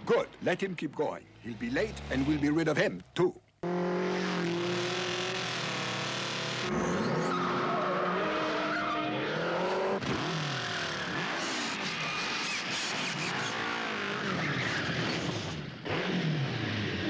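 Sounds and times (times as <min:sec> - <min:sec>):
motorcycle and car engines revving: 0:00.0 - 0:17.0
tyre squeals: 0:06.7 - 0:09.8.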